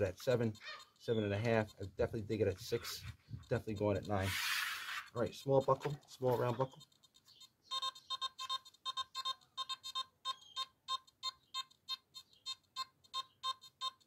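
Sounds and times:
metal detector short beeps: 0:06.3 - 0:14.0.

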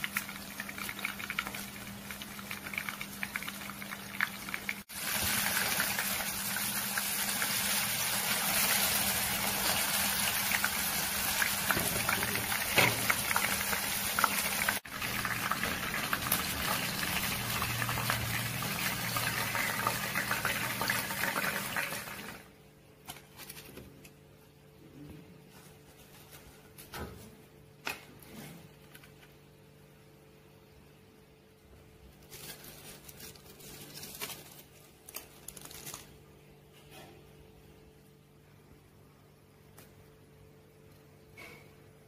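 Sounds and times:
hot oil sizzling and popping: 0:00.0 - 0:22.5.

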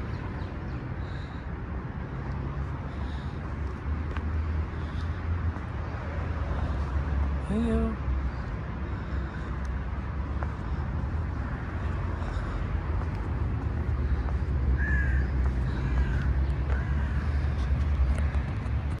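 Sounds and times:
low outdoor rumble: 0:01.0 - 0:19.0.

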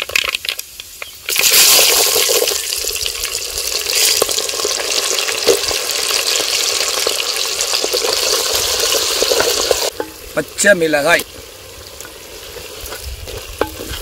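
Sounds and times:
onions sizzling in oil: 0:00.2 - 0:14.0
ladle scraping a pot: 0:11.8 - 0:14.0.

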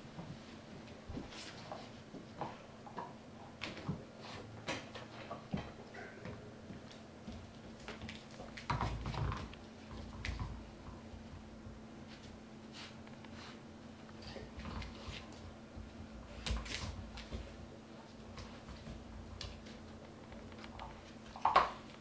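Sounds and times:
dogs pawing on hardwood floor: 0:00.1 - 0:22.0
dogs knocking rubber toys on floor: 0:04.6 - 0:11.0, 0:21.4 - 0:21.9.

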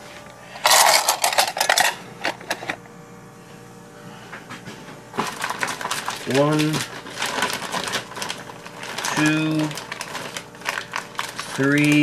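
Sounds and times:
plastic bags rustling: 0:05.2 - 0:12.0.

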